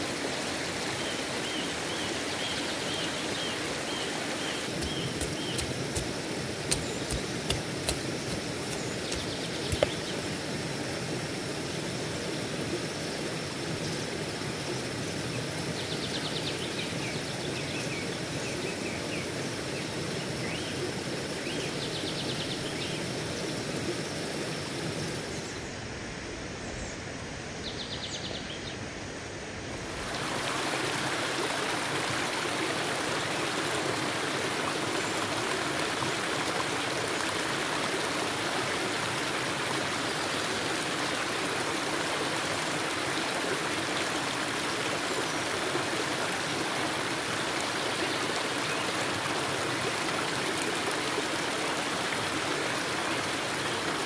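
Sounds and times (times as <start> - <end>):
stream running over rocks: 0.0 - 25.7, 29.5 - 54.0
sharp taps: 4.8 - 10.0.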